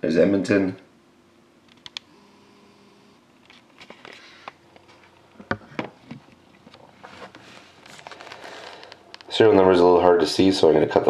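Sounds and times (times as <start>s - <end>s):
plastic wrapper crinkling: 6.8s - 9.3s.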